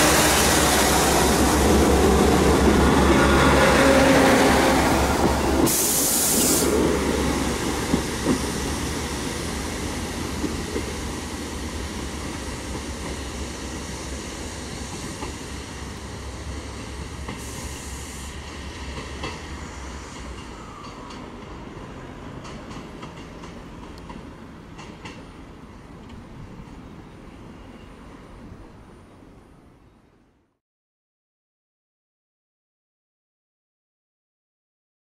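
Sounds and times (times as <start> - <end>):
diesel train engine drone: 0.0 - 29.8
air hiss bursts: 5.6 - 6.9, 17.2 - 18.5
wheels clicking over rail joints: 22.4 - 25.3.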